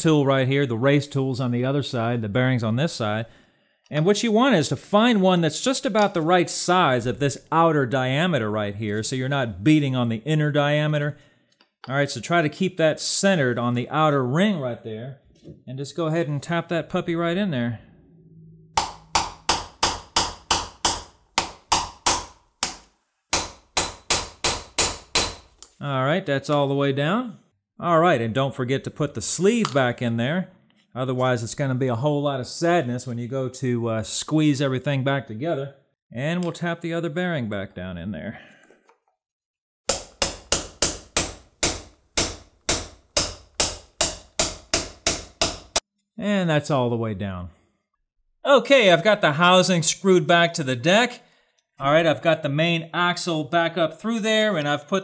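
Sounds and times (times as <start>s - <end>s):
hammer tapping on steel: 18.8s - 25.5s, 39.9s - 45.8s.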